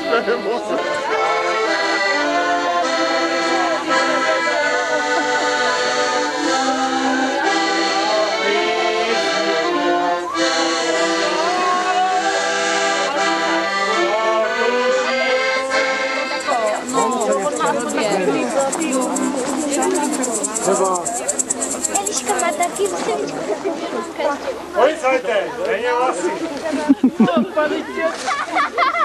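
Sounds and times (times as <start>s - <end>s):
accordion folk tune: 0.0s - 25.2s.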